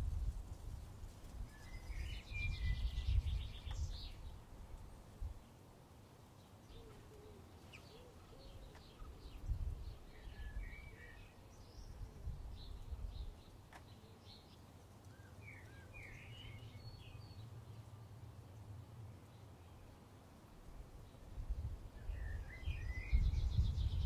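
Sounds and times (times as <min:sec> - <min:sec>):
low wind rumble: 0:00.0 - 0:05.5, 0:08.5 - 0:13.7, 0:15.6 - 0:24.0
songbirds chirping: 0:00.0 - 0:24.0.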